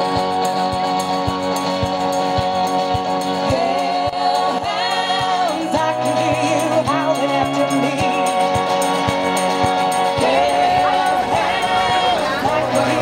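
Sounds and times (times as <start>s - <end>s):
music with steady beat: 0.0s - 13.0s
person singing long notes: 10.0s - 13.0s.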